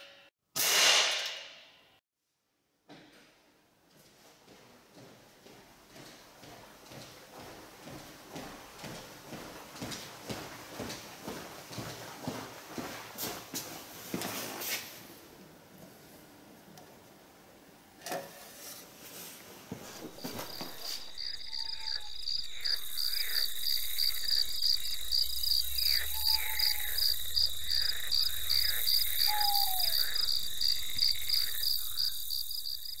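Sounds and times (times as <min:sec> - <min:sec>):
crickets chirping: 0:19.9 - 0:33.0.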